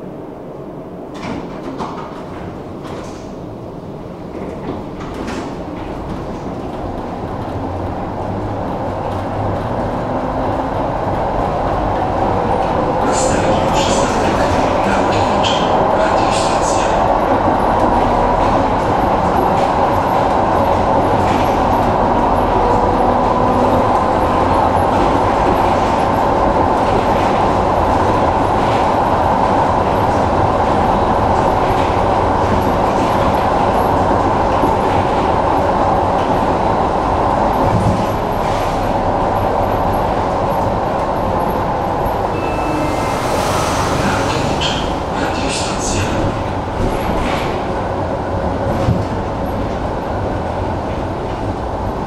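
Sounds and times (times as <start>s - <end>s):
tram wheels rumbling on rail: 0.0s - 52.0s
high tone: 42.3s - 45.3s.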